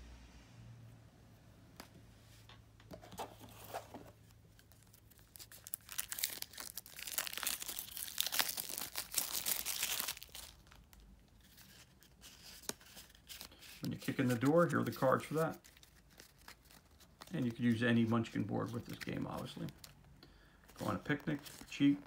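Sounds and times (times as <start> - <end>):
plastic wrap crinkling and tearing: 4.4 - 20.1.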